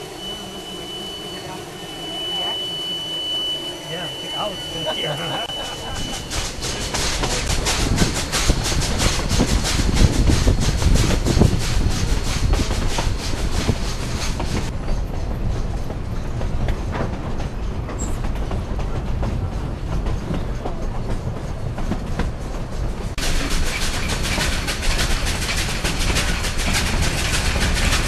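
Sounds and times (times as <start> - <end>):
steam train rumbling on track: 0.0 - 28.0
rapid wheel clicking: 23.2 - 28.0.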